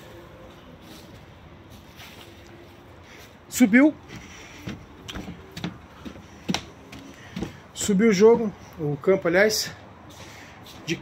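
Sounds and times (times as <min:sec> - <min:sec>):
soft scuffs: 0:00.5 - 0:03.4, 0:04.0 - 0:08.8, 0:10.0 - 0:11.0.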